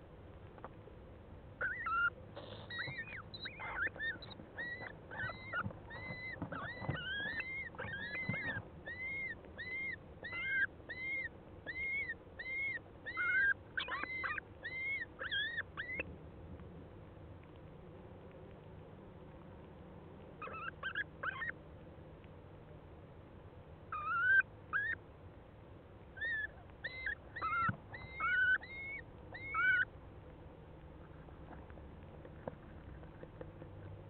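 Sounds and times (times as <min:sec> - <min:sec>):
owls calling: 0:01.6 - 0:16.1, 0:20.4 - 0:21.6, 0:23.9 - 0:25.0, 0:26.2 - 0:29.9.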